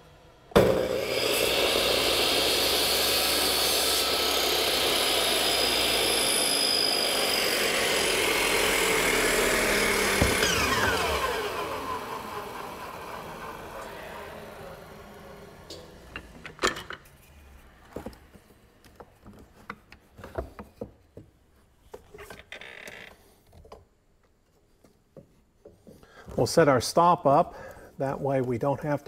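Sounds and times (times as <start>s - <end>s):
miter saw cutting wood: 0.5s - 15.8s.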